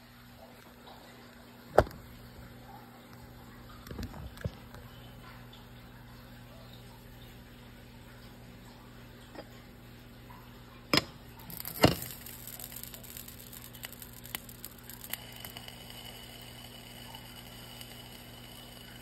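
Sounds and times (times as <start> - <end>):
pancake cooking hiss: 11.5 - 19.0.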